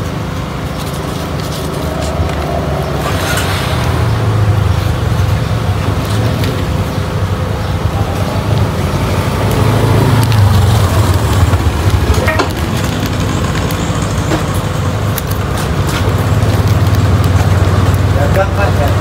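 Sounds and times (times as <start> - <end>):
banknotes and plastic crinkling: 0.0 - 2.9, 10.3 - 19.0
low engine rumble: 0.0 - 19.0.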